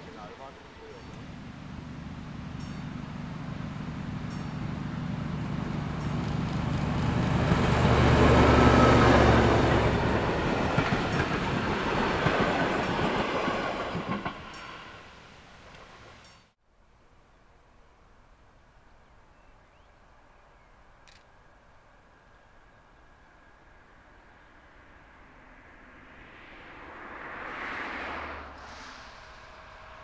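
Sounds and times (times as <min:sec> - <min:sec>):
diesel locomotive engine drone: 0:00.0 - 0:16.6, 0:20.8 - 0:30.0.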